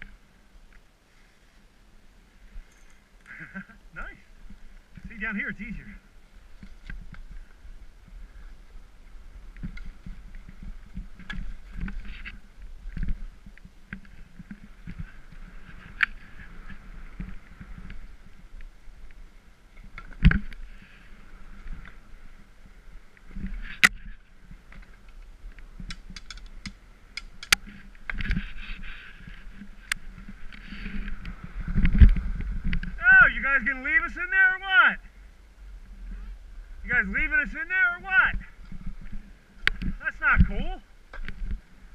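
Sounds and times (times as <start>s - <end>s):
wind rumble on microphone: 3.5s - 34.0s, 35.0s - 41.9s
sharp clicks and knocks: 25.1s - 28.4s.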